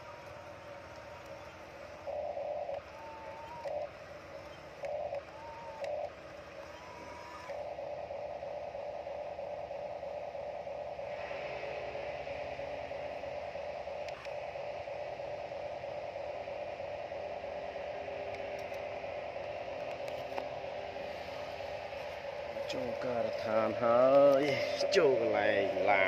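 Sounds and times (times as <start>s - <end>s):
mid-pitched hum: 0.0s - 26.0s
steady hiss: 0.0s - 26.0s.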